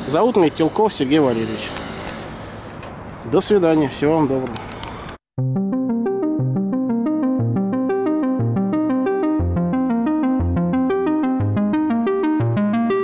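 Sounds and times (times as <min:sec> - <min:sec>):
bass line: 0:05.4 - 0:13.0
synthesizer keyboard tune: 0:05.4 - 0:13.0.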